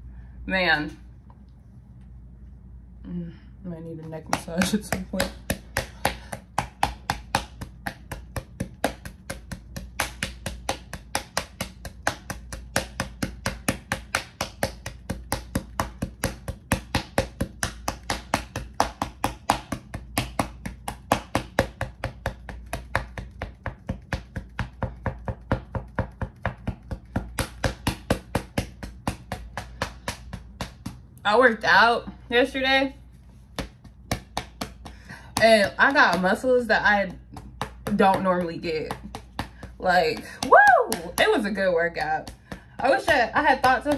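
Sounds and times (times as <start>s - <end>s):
music with clicking beat: 6.4s - 31.2s.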